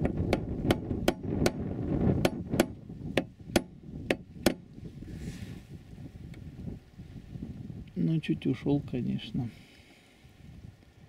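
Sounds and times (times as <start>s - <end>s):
hammer tapping metal punch: 2.2s - 4.6s.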